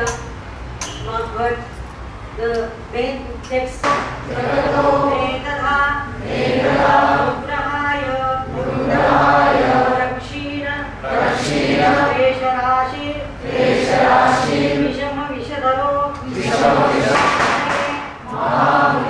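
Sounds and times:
group chanting in unison: 4.0 - 7.7, 8.4 - 12.4, 13.2 - 15.0, 16.2 - 19.0.

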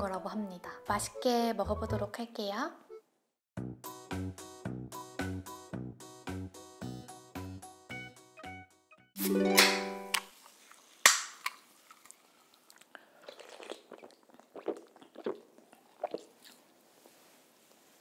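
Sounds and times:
soft gulps swallowing: 12.7 - 16.7.

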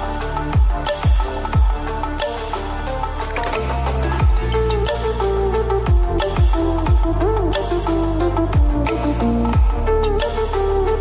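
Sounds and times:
deep kick drums dropping in pitch: 5.9 - 7.2.

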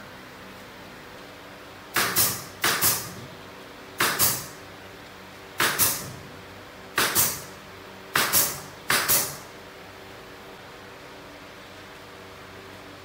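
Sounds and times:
hiss of exhaust air: 2.0 - 3.2, 5.6 - 6.1, 8.2 - 9.4
nail gun firing: 2.0 - 3.2, 4.0 - 4.6, 5.6 - 6.1, 7.0 - 7.5, 8.1 - 9.5.

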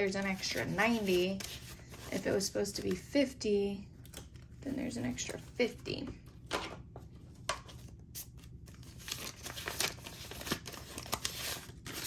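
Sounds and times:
banknotes rustling: 0.0 - 3.1, 7.7 - 12.0.

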